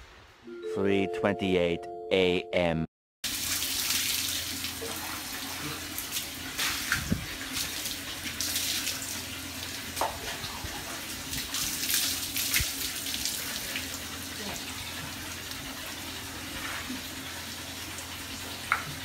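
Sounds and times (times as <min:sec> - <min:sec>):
water splashing on concrete floor: 0:03.3 - 0:14.8.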